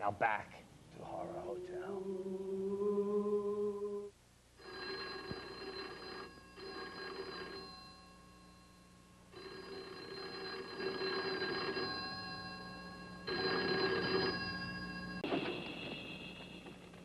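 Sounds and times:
low humming note: 0.9 - 4.1
telephone bell ringing: 4.6 - 17.0.

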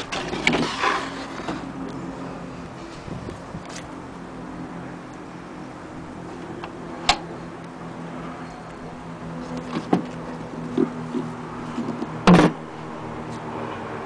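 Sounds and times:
loud thump: 12.2 - 12.6.

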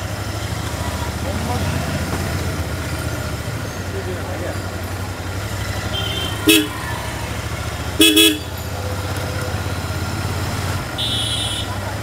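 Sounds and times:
motorcycle engine running: 0.0 - 12.0
horn beeps: 5.8 - 7.0, 8.0 - 8.6, 10.9 - 11.8.

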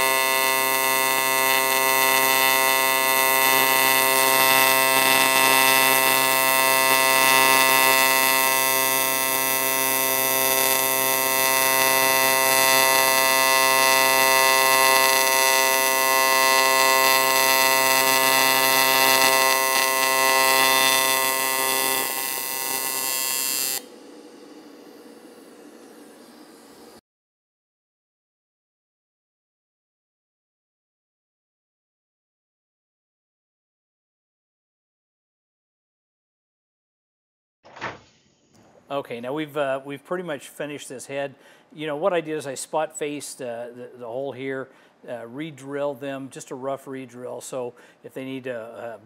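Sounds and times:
welding arc buzzing: 0.0 - 27.0.

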